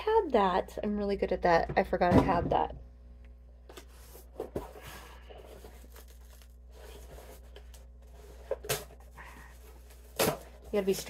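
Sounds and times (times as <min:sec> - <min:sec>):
packaging tearing and rustling: 0:05.4 - 0:11.0.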